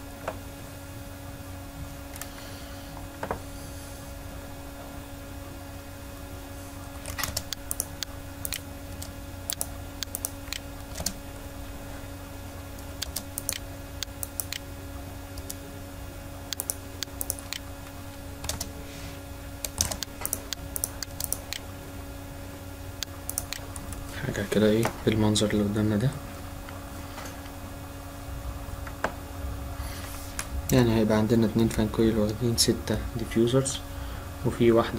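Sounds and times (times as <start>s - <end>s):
electrical hum: 0.0s - 34.9s
keyboard and mouse clicking: 7.0s - 11.2s, 12.9s - 14.6s, 15.4s - 15.6s, 16.5s - 17.6s, 18.4s - 18.7s, 19.6s - 21.6s, 23.3s - 24.0s.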